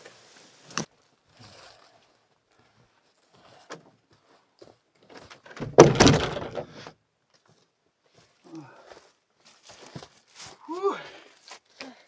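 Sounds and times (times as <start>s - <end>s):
canoe hull clattering against tree: 5.4s - 6.8s.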